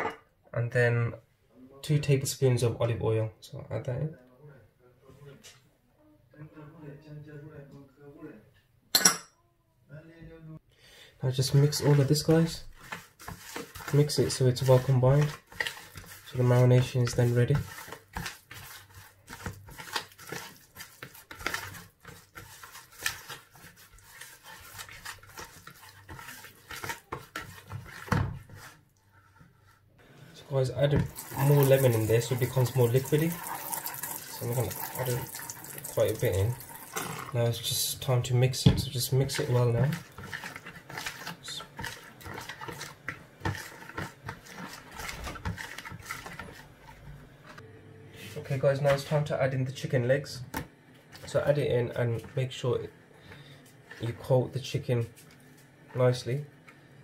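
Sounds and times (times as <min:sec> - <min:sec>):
hand mixing wet marinade: 0:11.2 - 0:47.6, 0:48.4 - 0:56.5.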